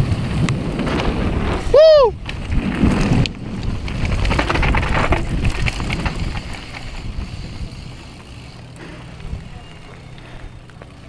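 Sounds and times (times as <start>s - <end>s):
bike tyres crunching on gravel: 0.0s - 11.0s
rattling clicks from bike: 2.2s - 11.0s.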